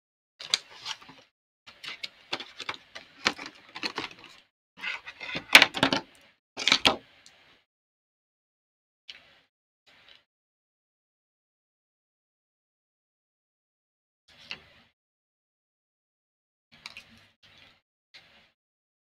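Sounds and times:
plastic sleeve rustling: 1.8s - 4.4s.

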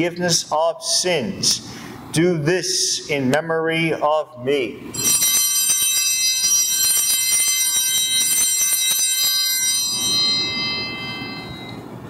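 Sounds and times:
small bells jingling: 5.0s - 11.9s.

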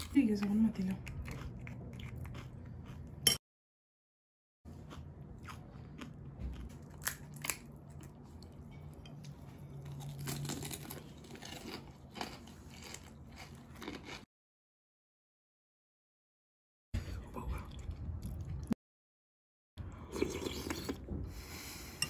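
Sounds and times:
fried shells cracking and crunching: 9.9s - 14.2s.

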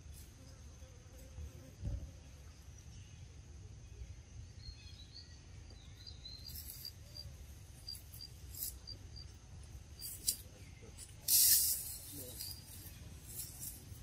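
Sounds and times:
high insect drone: 0.0s - 14.0s
hissy rustles: 11.0s - 14.0s.

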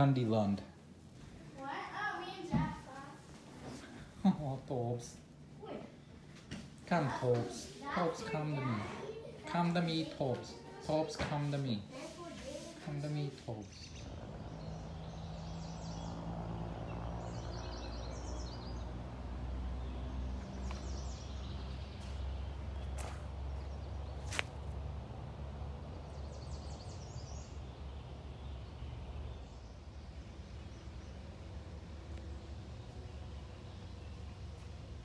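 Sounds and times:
songbirds chirping: 0.0s - 35.0s
steady low rumble: 13.9s - 18.4s.

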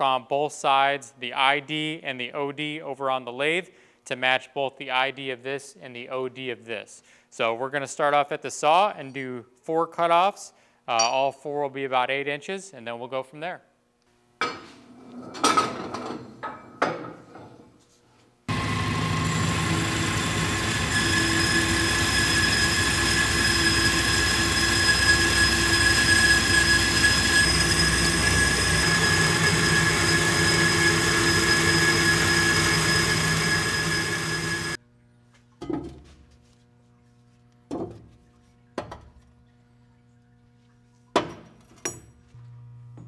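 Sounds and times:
metal-cutting saw whining: 18.5s - 34.8s.

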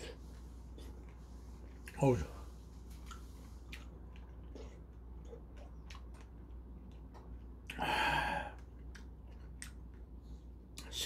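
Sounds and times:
person chewing crunchy food: 2.9s - 10.9s.

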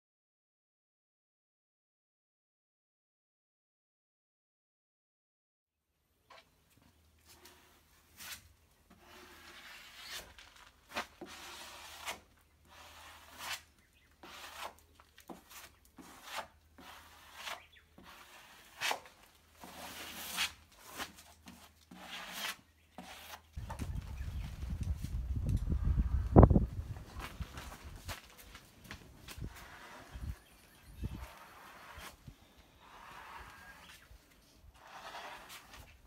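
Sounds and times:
hand tool scraping a deck: 7.2s - 23.9s, 29.2s - 36.0s.

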